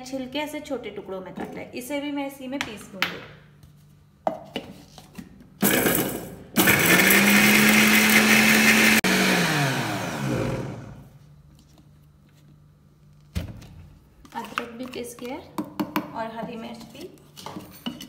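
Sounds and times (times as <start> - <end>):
mixer grinder running: 5.6 - 11.1
motor winding down whine: 9.0 - 11.0.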